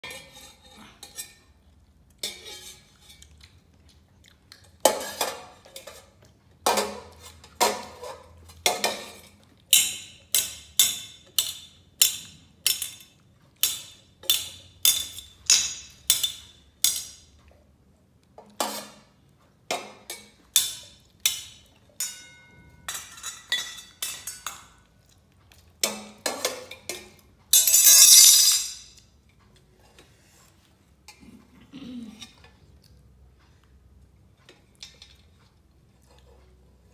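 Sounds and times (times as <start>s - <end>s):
metal spoon clanging on pot: 0.0s - 1.5s, 2.2s - 3.2s, 4.8s - 17.4s, 18.4s - 24.8s, 25.8s - 29.0s.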